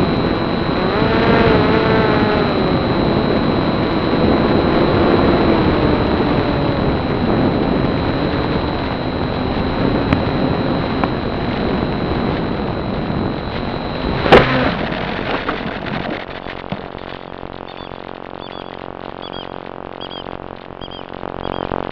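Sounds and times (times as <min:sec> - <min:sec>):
wind and propeller rush: 0:00.0 - 0:21.9
plane knocking into ground: 0:14.2 - 0:17.0
small birds chirping: 0:16.4 - 0:21.8.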